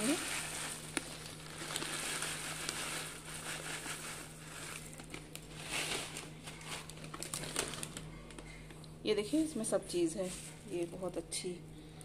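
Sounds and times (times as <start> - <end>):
dry snack pouring into bowl: 0.0 - 6.3
plastic packet crinkling: 0.0 - 8.8.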